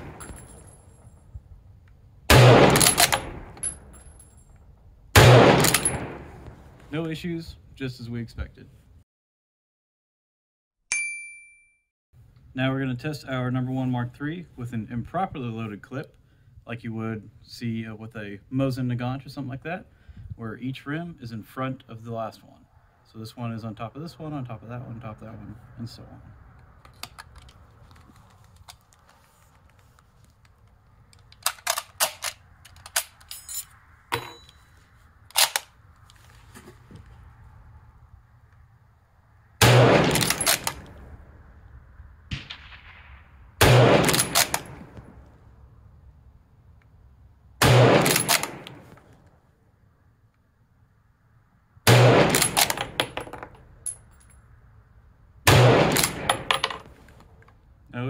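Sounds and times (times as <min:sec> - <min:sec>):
rifle shots: 0:00.0 - 0:00.8, 0:02.3 - 0:04.0, 0:05.2 - 0:06.6, 0:39.6 - 0:41.0, 0:42.3 - 0:45.2, 0:47.6 - 0:49.0, 0:51.9 - 0:53.2, 0:55.5 - 0:57.0
cartridges clicking into rifle magazine: 0:30.4 - 0:33.3
rifle bolt closing: 0:31.1 - 0:33.2, 0:35.3 - 0:35.8, 0:40.0 - 0:40.9, 0:44.0 - 0:44.7, 0:48.0 - 0:48.8.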